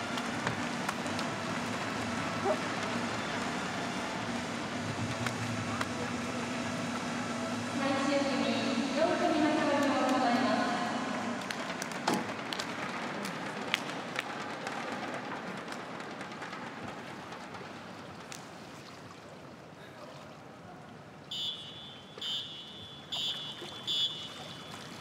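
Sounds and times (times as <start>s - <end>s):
hall noise: 0.0s - 17.6s
short high whistle blasts: 21.3s - 24.5s.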